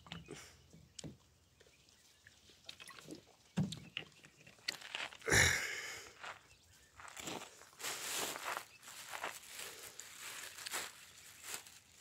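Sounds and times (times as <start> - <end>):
scuffs on sandy ground: 4.6 - 12.0.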